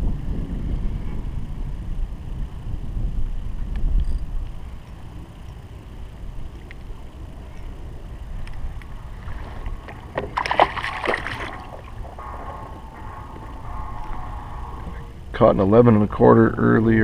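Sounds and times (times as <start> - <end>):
fish splashing in water: 9.1 - 12.9.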